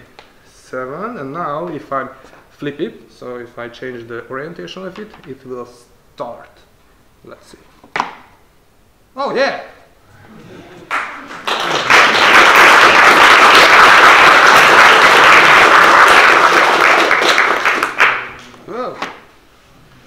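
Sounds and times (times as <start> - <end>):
audience applauding: 10.8 - 18.4.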